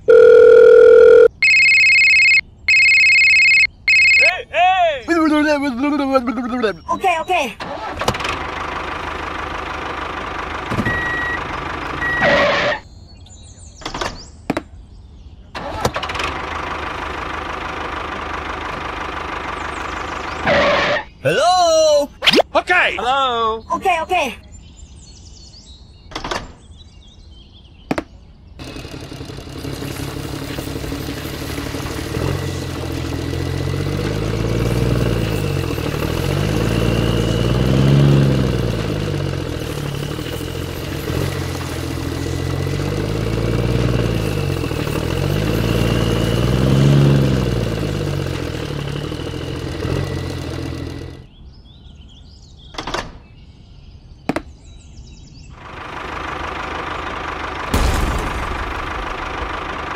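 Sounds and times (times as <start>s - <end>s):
tractor engine revving: 0.1s - 4.3s, 5.1s - 12.8s, 15.6s - 21.1s, 28.6s - 51.3s, 55.6s - 59.9s.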